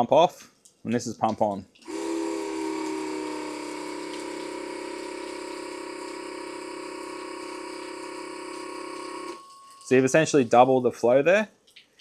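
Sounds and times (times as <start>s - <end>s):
electric pump humming: 1.8s - 10.8s.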